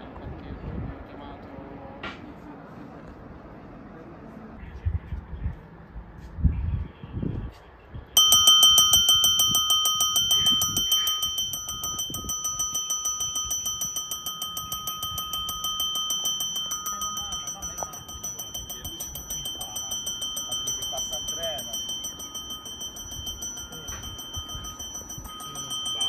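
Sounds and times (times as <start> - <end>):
electric bell ringing: 8.2 - 26.0.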